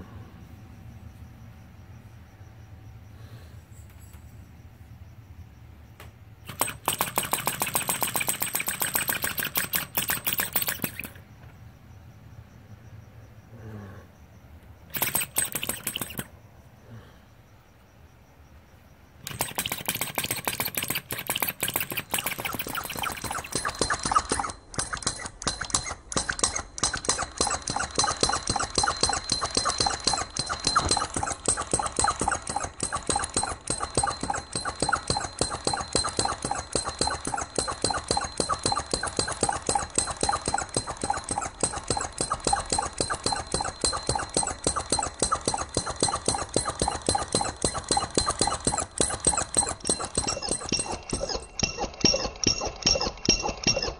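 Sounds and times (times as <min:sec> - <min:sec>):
model engine chuffing fast: 0:06.5 - 0:11.2, 0:14.9 - 0:16.3, 0:19.2 - 0:53.9.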